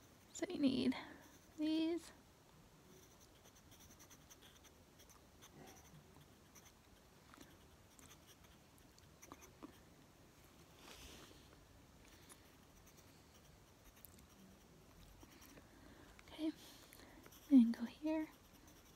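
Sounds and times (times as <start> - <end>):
pencil scratching on paper: 2.9 - 6.8, 12.6 - 15.5, 17.3 - 18.9.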